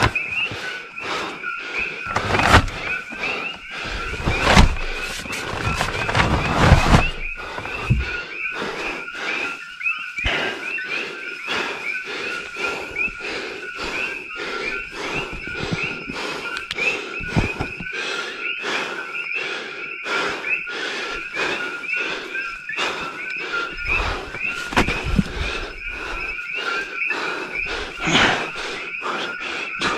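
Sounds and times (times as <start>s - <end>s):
frogs chirping: 0.0s - 29.9s
footsteps crunching through brush: 23.8s - 26.5s.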